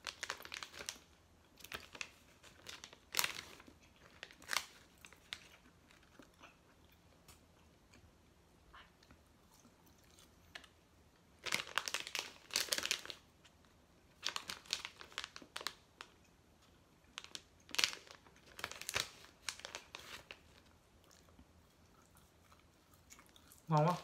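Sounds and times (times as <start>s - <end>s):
plastic pouch crinkling: 0.0s - 6.0s, 11.4s - 13.2s, 14.2s - 16.1s, 17.1s - 20.7s.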